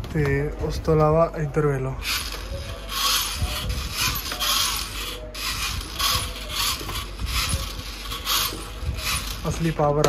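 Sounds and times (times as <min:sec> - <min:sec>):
small electric motors whirring: 0:02.0 - 0:09.8.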